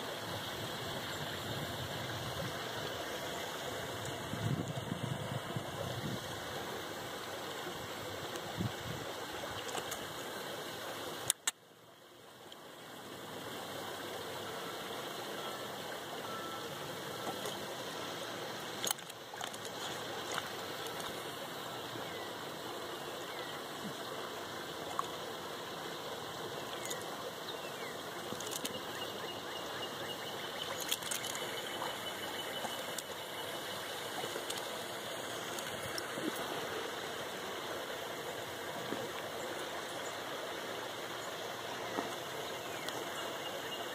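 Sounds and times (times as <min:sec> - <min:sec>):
outdoor background hiss: 0:00.0 - 0:43.9
faint clicks: 0:11.2 - 0:11.6, 0:28.3 - 0:28.8, 0:30.7 - 0:32.0.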